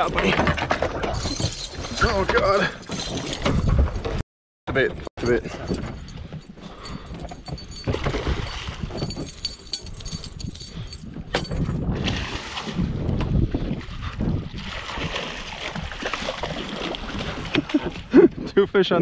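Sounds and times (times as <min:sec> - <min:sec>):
wind buffeting microphone: 0:05.5 - 0:15.1.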